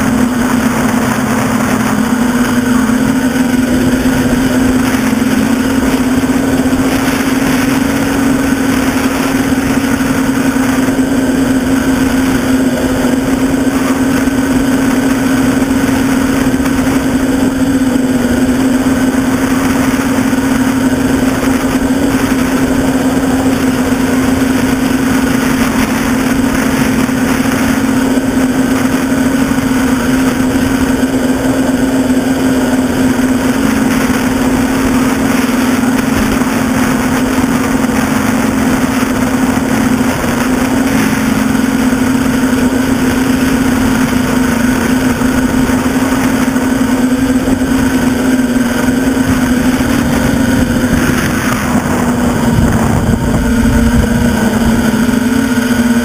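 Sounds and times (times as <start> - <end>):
quadcopter motors buzzing: 0.0 - 56.0.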